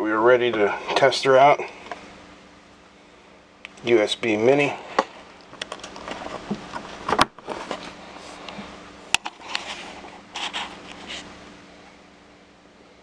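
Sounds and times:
cable rustling and scraping: 4.6s - 11.4s.

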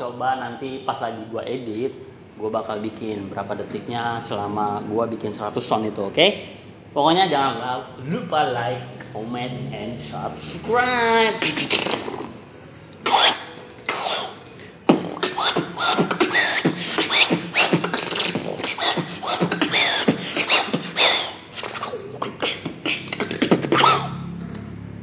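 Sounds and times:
person beatboxing: 10.1s - 12.4s, 13.0s - 24.4s.

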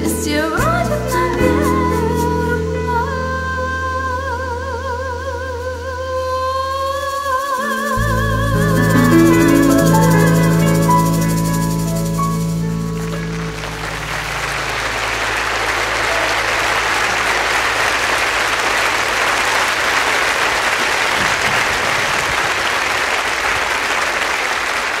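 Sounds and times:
audience applause: 10.4s - 25.0s
band final chord ringing: 12.5s - 16.1s.

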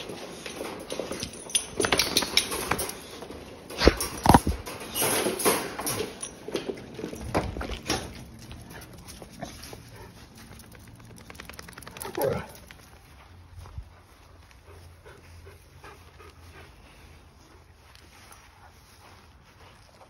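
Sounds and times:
knocks and rattles: 0.0s - 8.5s.

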